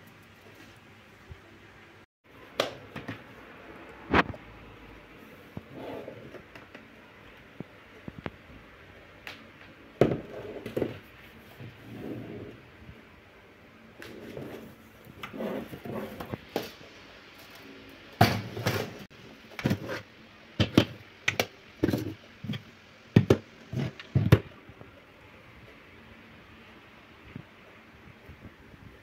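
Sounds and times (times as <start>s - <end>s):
plastic canisters knocking and clicking: 20.6s - 24.5s.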